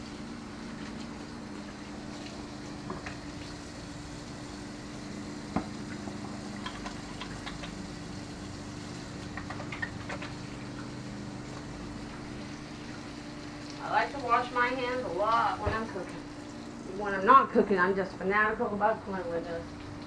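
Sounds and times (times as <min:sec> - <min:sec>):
steady low hum: 0:00.0 - 0:20.0
tap water running into sink: 0:01.6 - 0:03.7, 0:05.5 - 0:16.7.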